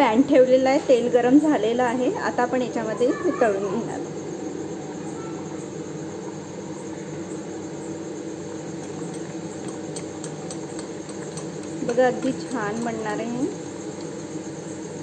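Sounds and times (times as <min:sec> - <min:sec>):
snack deep-frying in hot oil: 0:08.4 - 0:15.0.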